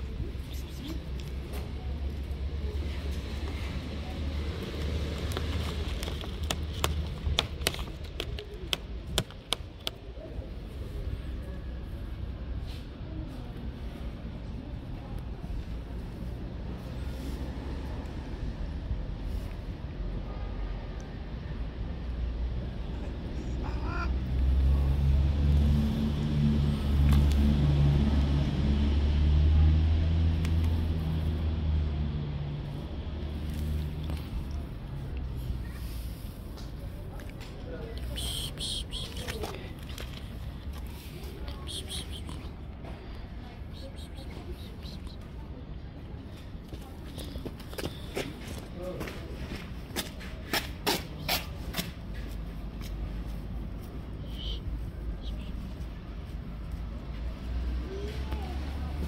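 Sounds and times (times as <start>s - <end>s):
cat growling: 23.4s - 24.2s.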